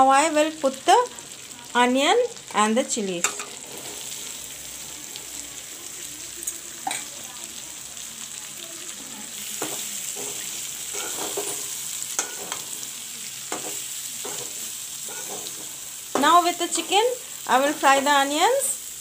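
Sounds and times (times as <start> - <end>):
food sizzling in hot oil: 0.0 - 19.0
spatula scraping and knocking pan: 9.6 - 12.9, 13.5 - 17.0.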